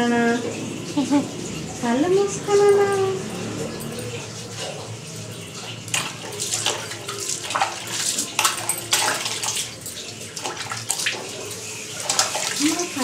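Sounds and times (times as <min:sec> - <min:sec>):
water splashing: 0:00.0 - 0:13.0.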